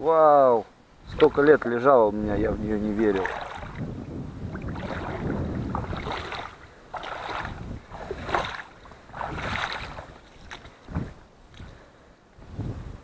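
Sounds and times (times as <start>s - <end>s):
water splashing and sloshing: 1.0s - 1.8s, 2.8s - 11.9s.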